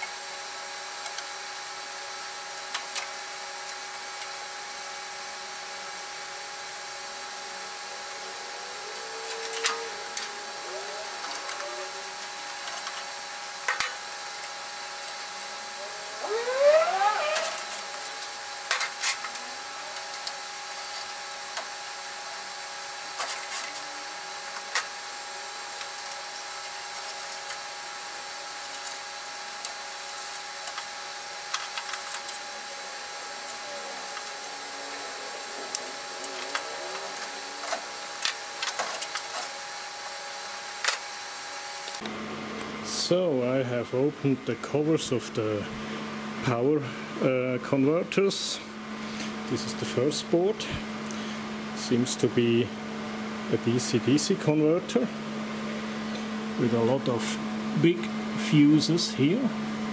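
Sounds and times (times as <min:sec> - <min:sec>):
steady hum: 0:00.0 - 0:59.9
metal scrape rising in pitch: 0:07.4 - 0:12.2, 0:15.7 - 0:18.2.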